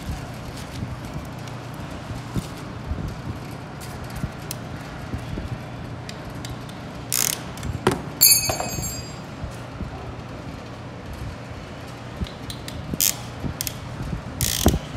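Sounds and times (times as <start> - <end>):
sharp metallic clank: 8.2 - 9.2
ratchet metal clicks: 14.4 - 14.8.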